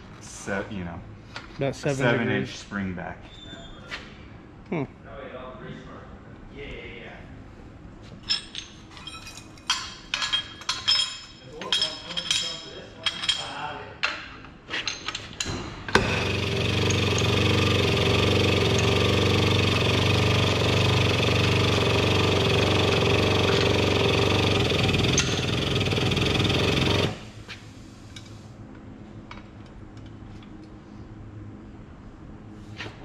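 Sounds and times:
light metal clinks: 8.2s - 13.5s
tube bender motor running: 16.0s - 27.4s.

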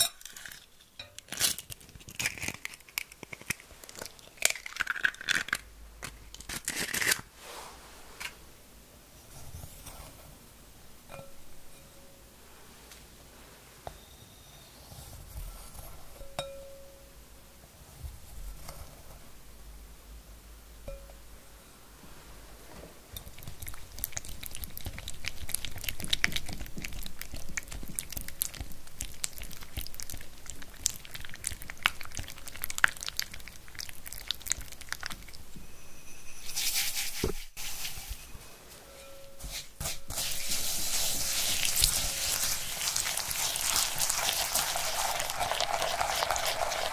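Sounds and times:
sugar pouring into bowl: 36.3s - 38.1s, 39.9s - 46.9s.

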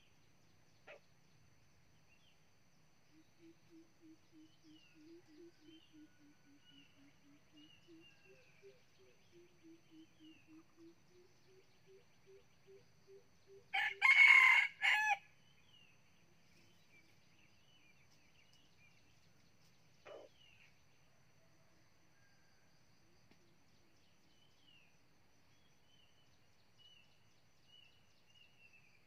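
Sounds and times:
faint bird chirps: 0.0s - 13.9s, 15.4s - 29.0s
rooster crowing: 13.7s - 15.3s.

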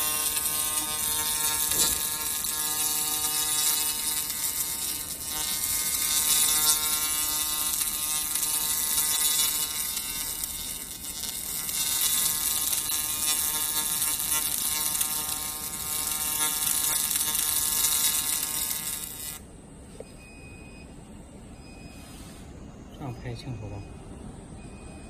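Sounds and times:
laser electric buzz: 0.0s - 19.5s.

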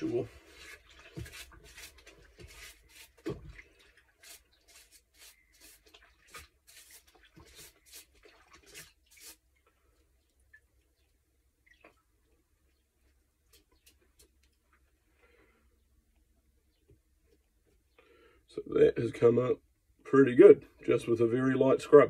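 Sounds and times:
scrubbing in soapy water: 0.0s - 9.5s.

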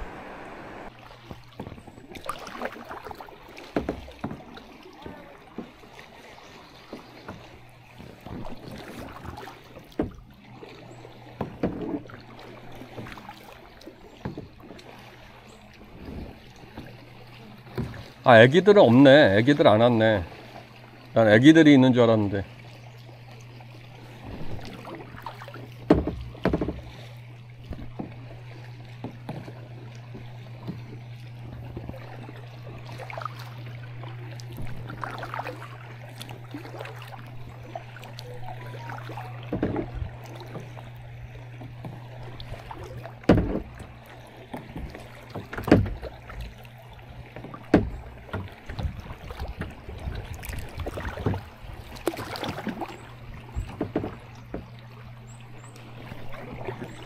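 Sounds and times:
steady low hum: 0.0s - 1.0s
paddle strokes and splashes: 0.0s - 57.0s.

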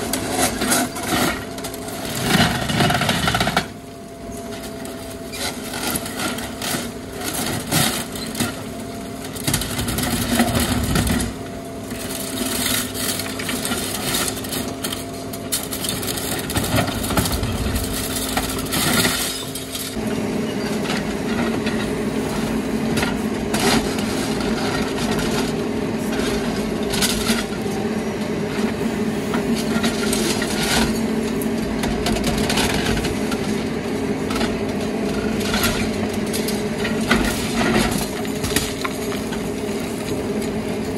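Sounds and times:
excavator engine and hydraulics hum: 0.0s - 40.9s
concrete cracking and crunching: 9.3s - 20.0s.

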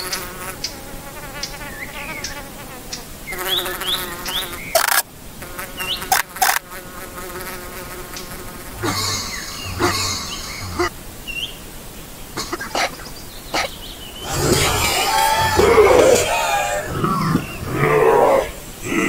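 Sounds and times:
bee buzzing in flight: 0.0s - 10.9s.

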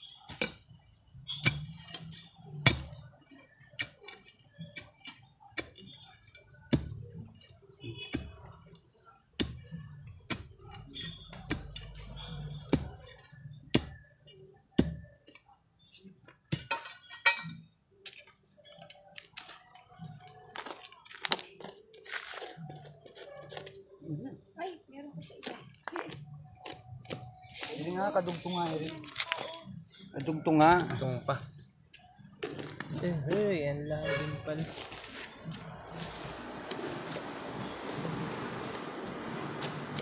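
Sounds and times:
metal tool striking hard soil: 1.3s - 3.1s.

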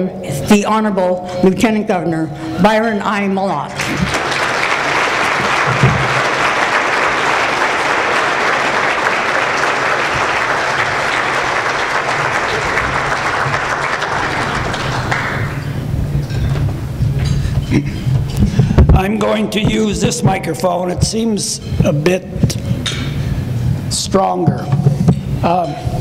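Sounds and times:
audience applauding: 3.8s - 16.0s.

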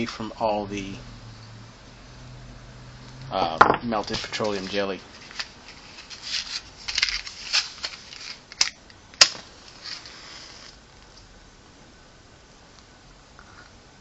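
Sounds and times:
rustling and scraping: 3.3s - 8.7s, 9.3s - 10.8s.

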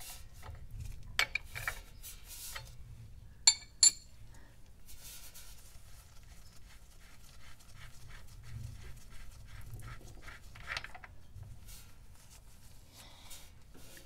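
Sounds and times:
wrench clinking on metal: 3.5s - 4.1s
rag rubbing on metal case: 6.2s - 12.0s.

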